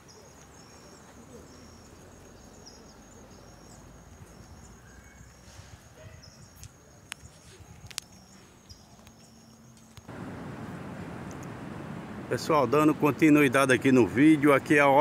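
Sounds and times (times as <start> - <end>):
insects chirping: 0.0 - 15.0.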